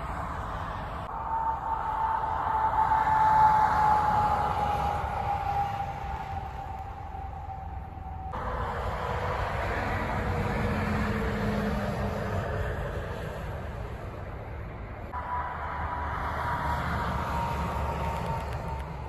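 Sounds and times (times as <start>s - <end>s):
faint steady whine: 0.0s - 11.2s
trucks passing on highway: 0.0s - 19.0s.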